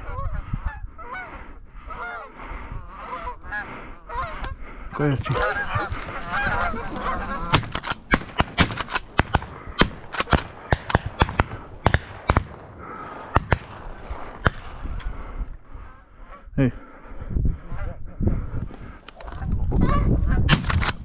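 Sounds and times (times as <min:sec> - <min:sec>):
geese honking: 0:00.0 - 0:07.8, 0:19.2 - 0:20.4
shotgun shots: 0:07.4 - 0:15.0.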